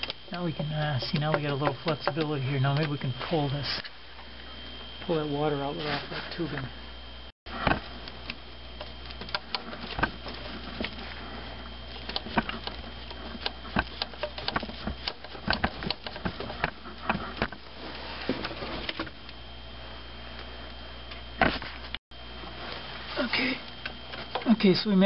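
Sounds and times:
clicks and knocks of hands working: 0.0 - 2.9, 7.6 - 11.0, 12.0 - 17.6.

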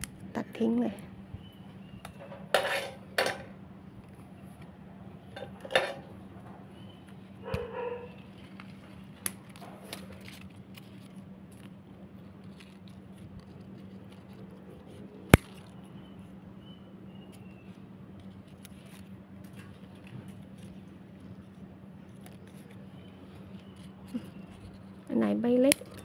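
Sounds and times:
leaves rustling: 7.2 - 15.8
pruning shears snipping: 15.3 - 15.8.

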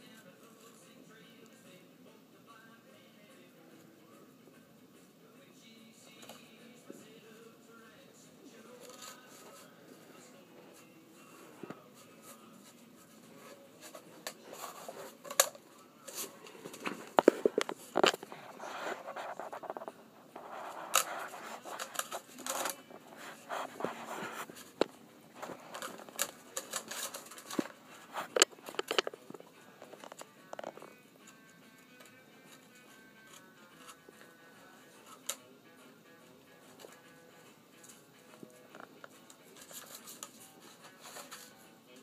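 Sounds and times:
phone handling noise: 16.6 - 18.3, 24.8 - 29.2.

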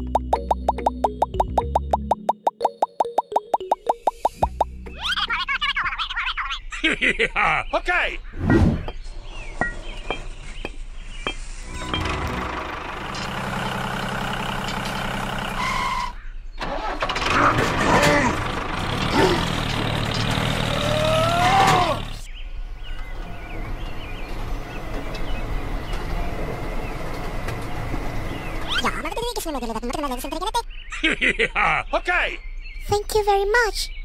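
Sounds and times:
tractor engine revving: 11.6 - 22.3.

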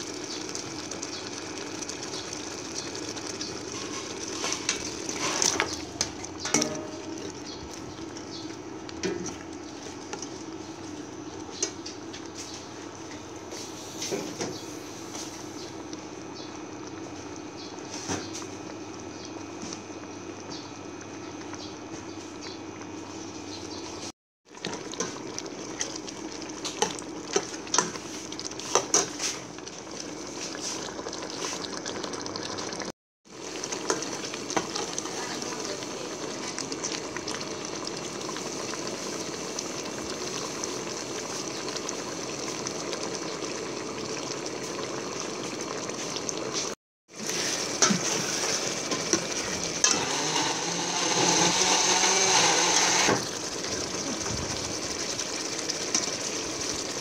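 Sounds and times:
stew bubbling in a pot: 0.0 - 57.0
ladle stirring: 1.9 - 13.2
ladle clinking against pot: 6.4 - 7.2.

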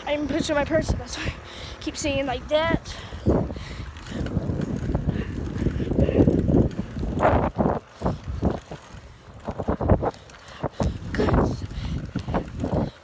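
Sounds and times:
wind buffeting microphone: 0.0 - 13.0
bike knocks and rattles: 3.3 - 13.0.

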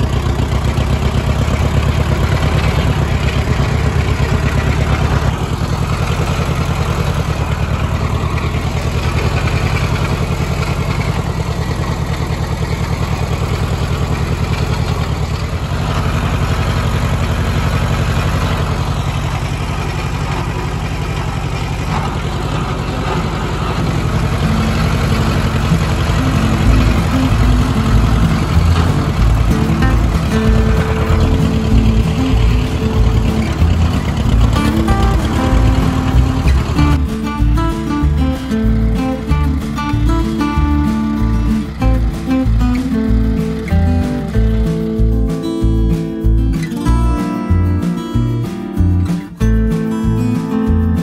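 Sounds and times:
tractor engine running: 0.0 - 51.0.

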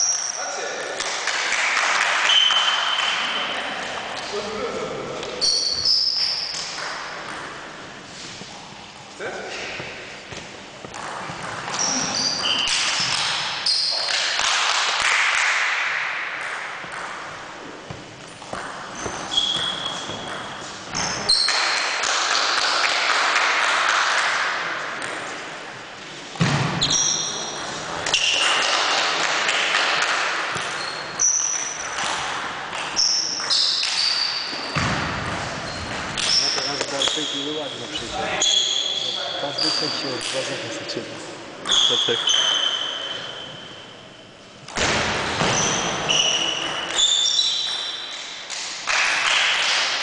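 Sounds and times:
sneakers squeaking on floor: 2.2 - 4.4, 5.2 - 14.3, 17.6 - 21.9, 26.4 - 28.9, 30.5 - 32.2, 32.8 - 40.6, 41.6 - 44.5, 45.3 - 48.4.

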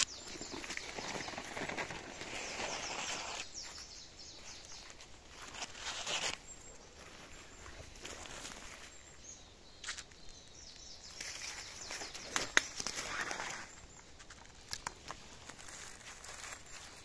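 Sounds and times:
footsteps in dry leaves: 0.0 - 9.1, 11.0 - 17.0
twigs snapping: 9.8 - 17.0.

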